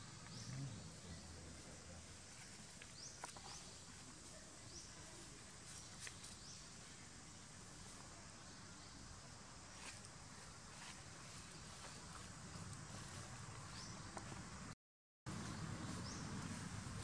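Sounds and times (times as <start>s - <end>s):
steady low hiss: 0.0s - 17.0s.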